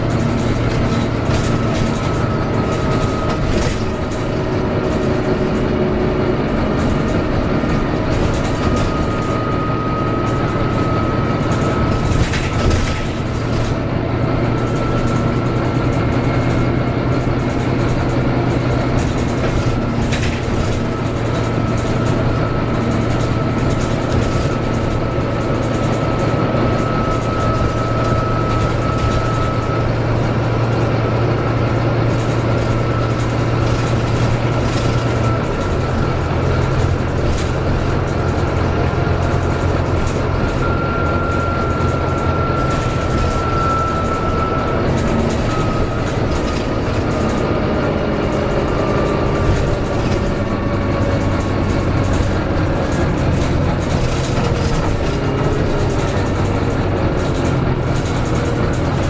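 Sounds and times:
bus engine drone: 0:00.0 - 0:59.0.

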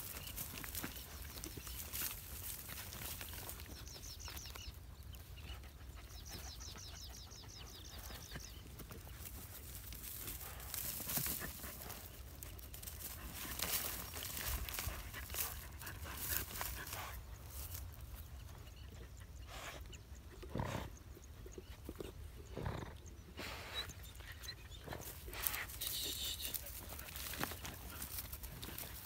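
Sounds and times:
dogs scratching in dirt: 0:00.0 - 0:20.3, 0:23.4 - 0:29.0.

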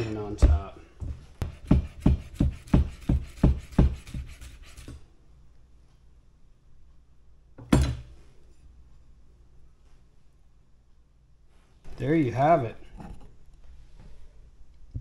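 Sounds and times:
knife chopping on plastic board: 0:00.4 - 0:05.0.

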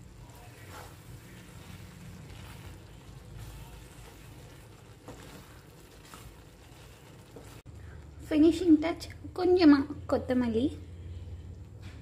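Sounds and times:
wooden spatula stirring thick gravy: 0:00.0 - 0:08.0
faint soft scrapes: 0:00.2 - 0:07.7.

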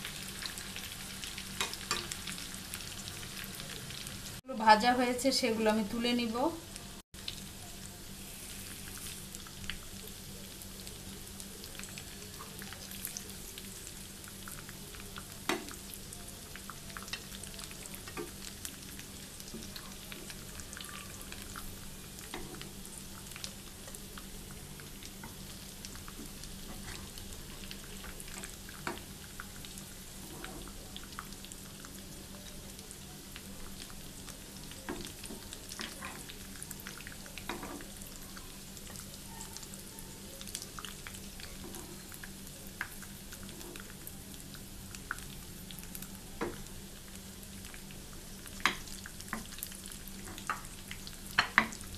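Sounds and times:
food sizzling in oil: 0:00.0 - 0:51.9.

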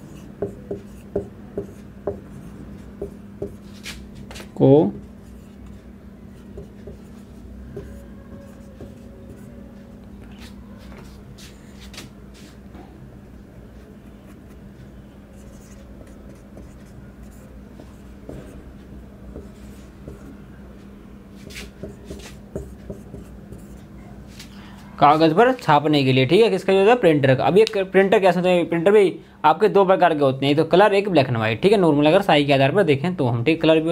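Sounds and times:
marker pen scratching on whiteboard: 0:00.0 - 0:12.5, 0:13.8 - 0:20.5, 0:21.4 - 0:24.4
steady low hum: 0:00.0 - 0:27.5.

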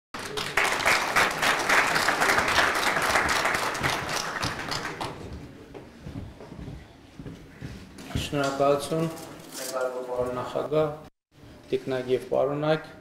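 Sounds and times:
audience applauding: 0:00.2 - 0:05.3.

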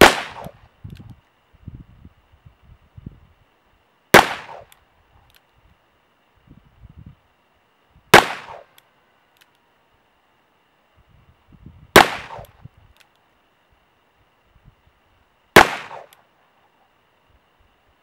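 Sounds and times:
revolver gunshots: 0:00.0 - 0:00.6, 0:04.1 - 0:04.7, 0:08.1 - 0:08.7, 0:11.9 - 0:12.5, 0:15.6 - 0:16.2.

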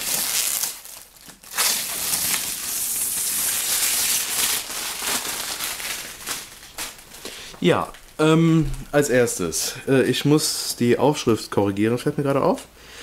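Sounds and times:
plastic film peeling and crinkling: 0:00.0 - 0:08.2.

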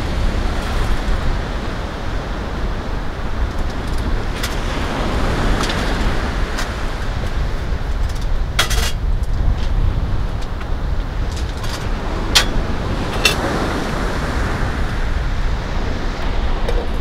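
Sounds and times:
surf washing: 0:00.0 - 0:17.0
wind rumbling on microphone: 0:00.0 - 0:17.0
metallic clinks of cookware: 0:08.6 - 0:09.0, 0:12.4 - 0:13.5.

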